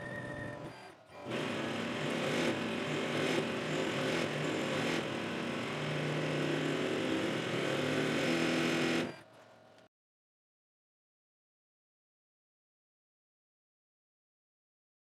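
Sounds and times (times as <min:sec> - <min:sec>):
lathe cutting metal bar: 0:00.6 - 0:09.2.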